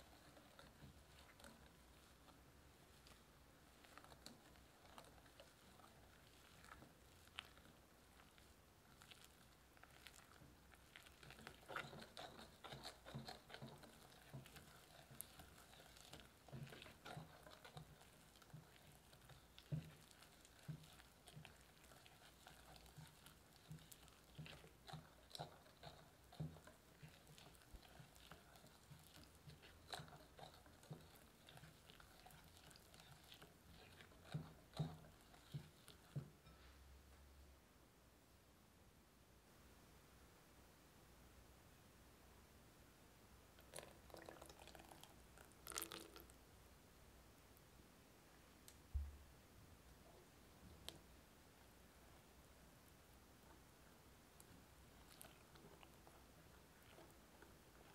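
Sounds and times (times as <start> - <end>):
wet squelching of batter: 0.0 - 36.6, 43.5 - 46.4, 53.2 - 57.9
whisk tapping glass bowl: 11.3 - 36.6.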